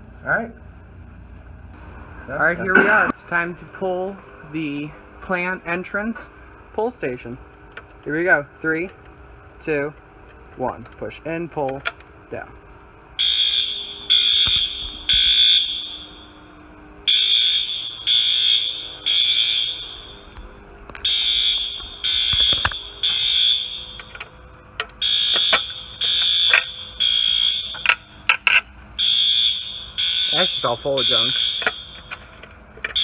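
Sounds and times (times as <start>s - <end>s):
fire alarm horn blasts: 13.2s - 24.4s, 25.0s - 28.2s, 29.0s - 33.0s.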